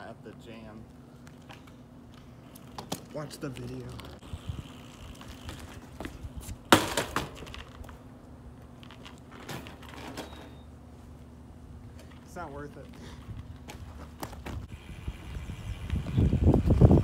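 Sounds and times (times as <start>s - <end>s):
bike clattering on pavement: 2.5s - 8.0s, 8.6s - 10.6s, 12.0s - 14.7s.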